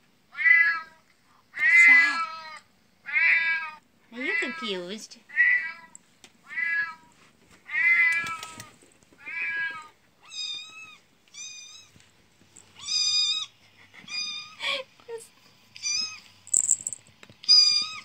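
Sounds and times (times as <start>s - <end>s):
recorded cat meows from speaker: 1.6s - 4.6s.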